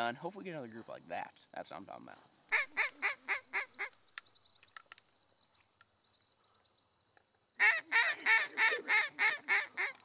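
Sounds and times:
high buzz of insects: 0:00.0 - 0:10.0
duck call notes: 0:07.6 - 0:10.0.

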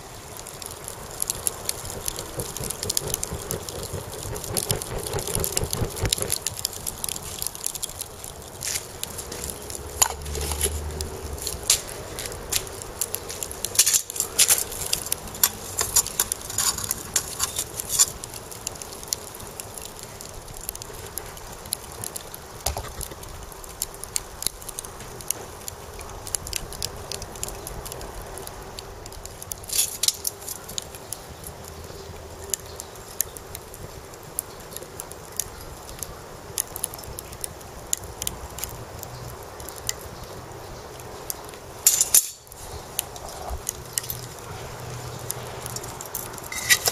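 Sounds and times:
charcoal crackling and popping: 0:00.0 - 0:46.9.

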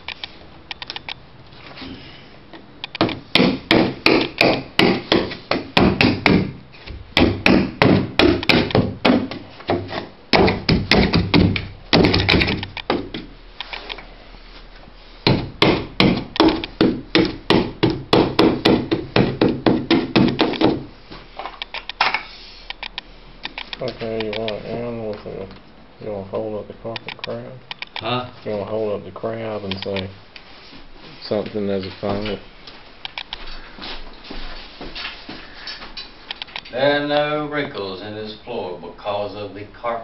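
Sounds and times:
hand tool knocking carpet: 0:03.0 - 0:13.3, 0:15.3 - 0:20.9.

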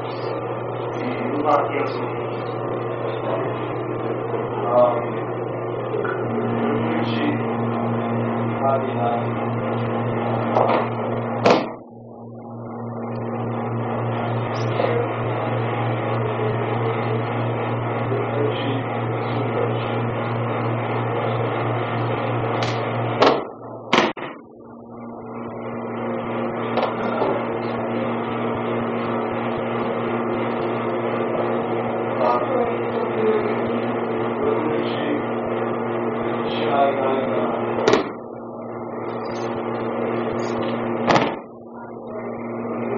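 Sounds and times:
electrical hum: 0:00.0 - 0:42.9
sharp knocks: 0:10.5 - 0:11.8, 0:22.6 - 0:24.4, 0:26.8 - 0:27.4, 0:37.8 - 0:38.2, 0:41.0 - 0:41.5.

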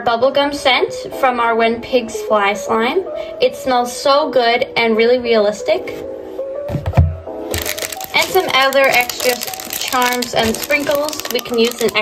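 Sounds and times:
background music with held notes: 0:00.0 - 0:12.0
plastic bag crinkling: 0:07.5 - 0:12.0.

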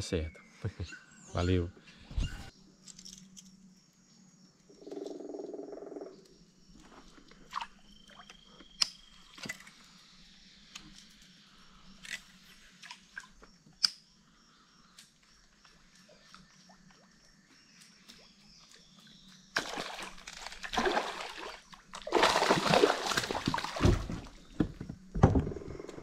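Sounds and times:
fish splashing in water: 0:19.6 - 0:24.4.

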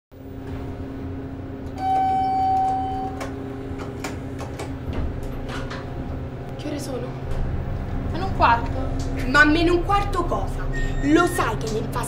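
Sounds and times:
elevator cabin hum: 0:00.2 - 0:12.0
held electronic tone: 0:01.8 - 0:03.4, 0:10.6 - 0:11.6.

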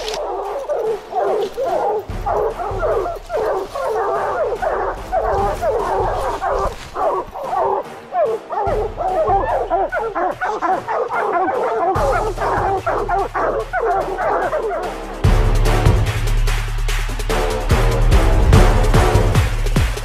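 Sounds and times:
music with heavy low beat: 0:00.0 - 0:07.8, 0:11.4 - 0:20.0
hounds barking and bawling: 0:00.0 - 0:16.0.

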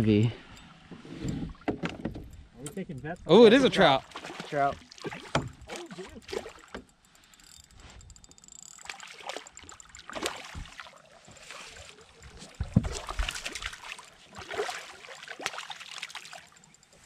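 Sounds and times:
fish splashing in water: 0:04.0 - 0:06.7, 0:08.8 - 0:16.8.

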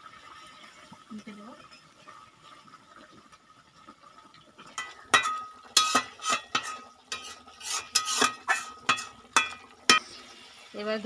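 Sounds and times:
curry bubbling: 0:00.0 - 0:11.0
spatula scraping metal pan: 0:04.8 - 0:10.1.

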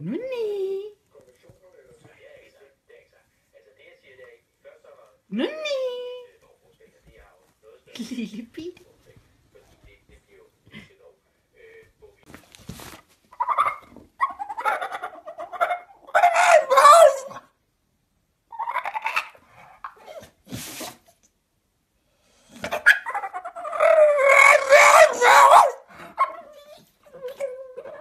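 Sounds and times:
dog howling: 0:13.6 - 0:17.4, 0:22.8 - 0:28.0.

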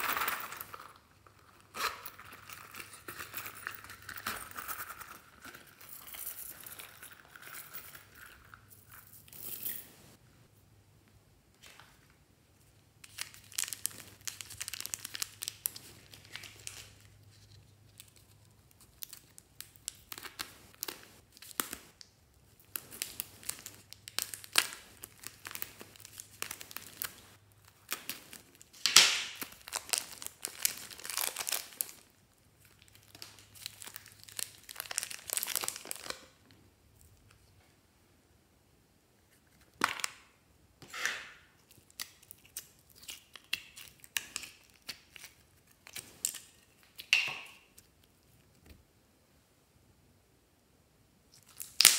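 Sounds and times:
plastic packets crinkling: 0:13.0 - 0:22.0, 0:22.6 - 0:36.4.

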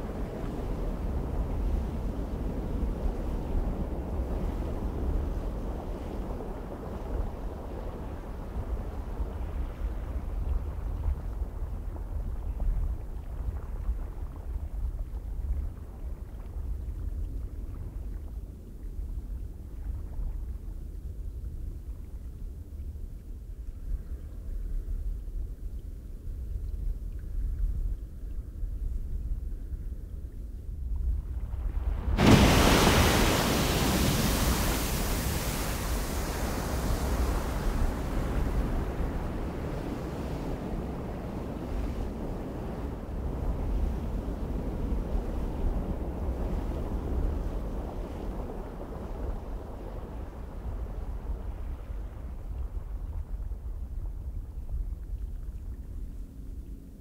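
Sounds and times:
rumbling rush of wind: 0:00.0 - 0:13.7, 0:30.8 - 0:56.2.

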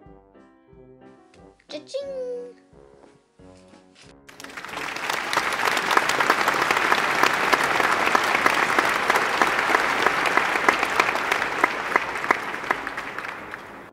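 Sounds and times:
crowd applauding: 0:04.3 - 0:13.9.

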